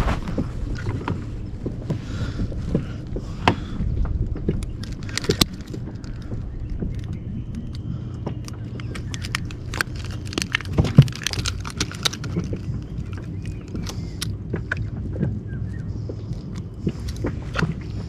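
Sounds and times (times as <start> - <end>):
motor humming: 0.0 - 14.7
sharp clicks and knocks: 2.7 - 15.4.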